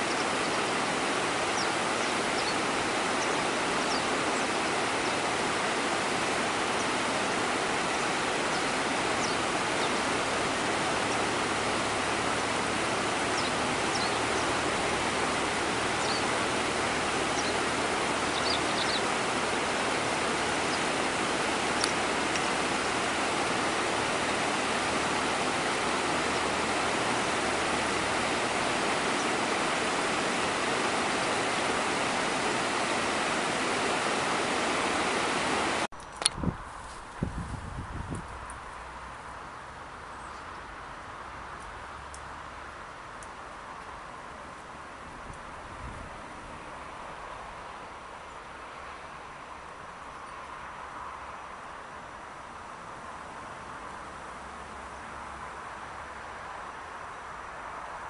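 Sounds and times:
river water rushing over rocks: 0.0s - 35.9s.

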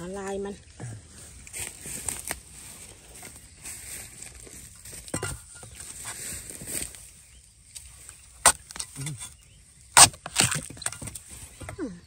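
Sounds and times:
machete chopping bamboo: 8.4s - 11.9s.

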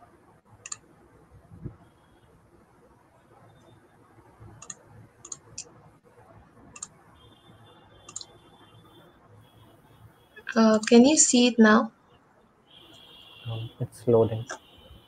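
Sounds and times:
computer mouse clicks: 0.6s - 0.8s, 4.5s - 5.7s, 6.7s - 7.0s, 8.1s - 8.3s.

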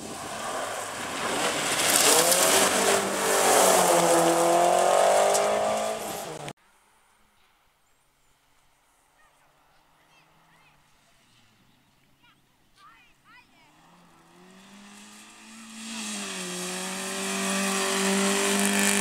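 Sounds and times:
rally car engine at full throttle: 0.0s - 6.5s, 13.6s - 19.0s
tyre and road noise: 0.0s - 6.6s, 13.1s - 19.0s.

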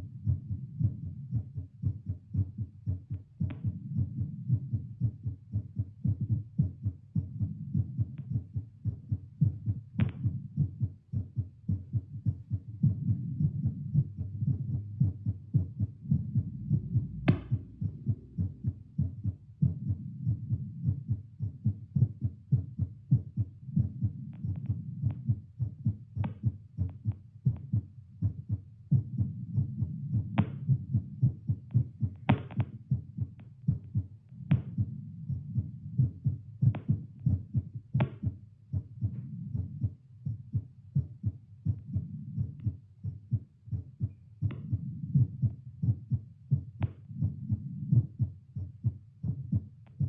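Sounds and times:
heartbeat thuds through stethoscope: 0.0s - 50.0s
low hum: 13.7s - 19.6s.

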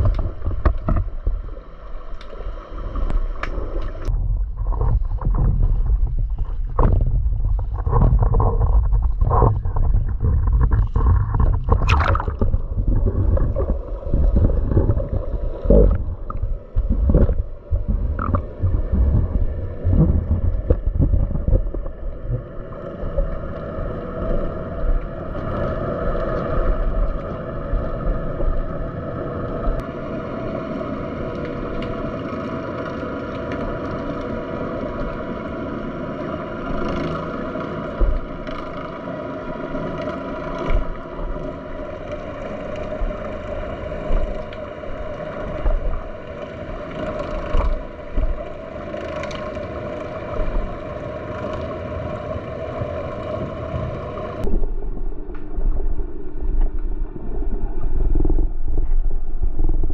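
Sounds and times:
underwater mechanical drone: 0.0s - 59.9s
faint clicks: 1.8s - 4.2s
low thumps: 4.1s - 22.4s.

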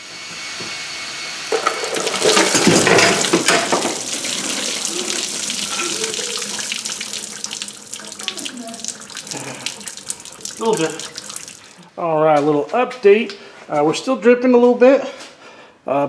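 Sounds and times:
coolant pouring and splashing: 1.4s - 11.8s.

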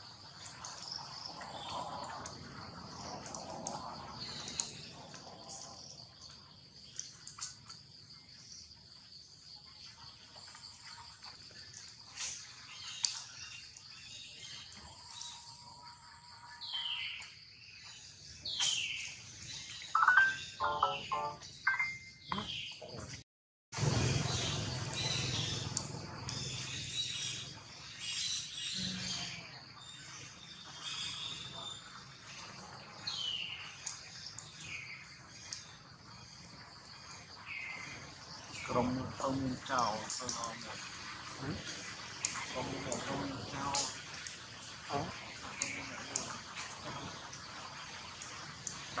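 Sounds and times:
faint clicks: 3.2s - 7.8s
bird chirps: 18.1s - 23.0s
short high falling calls: 20.0s - 21.8s.

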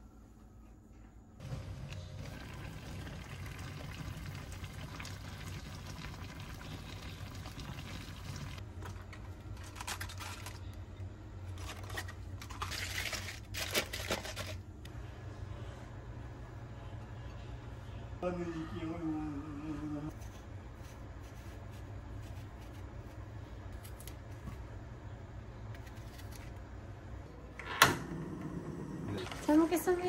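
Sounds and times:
stew bubbling in pot: 1.4s - 8.6s
low hum: 14.7s - 30.0s.

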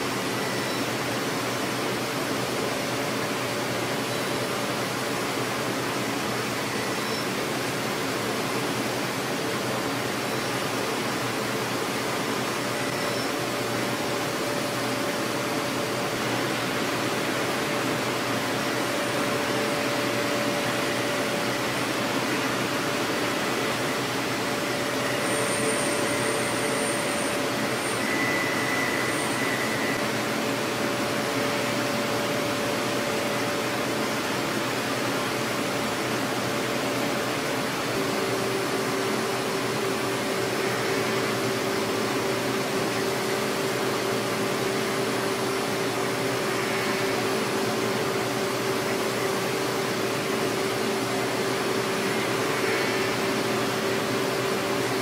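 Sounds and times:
lower machine tone: 12.1s - 55.0s
milling cutting whine: 12.6s - 34.9s.

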